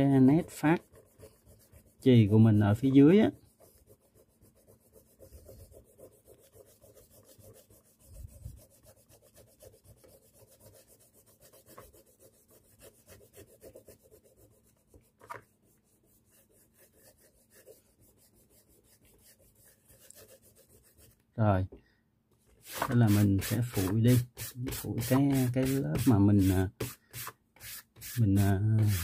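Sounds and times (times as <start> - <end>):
eraser rubbing on paper: 0.0 - 21.2, 22.6 - 29.0.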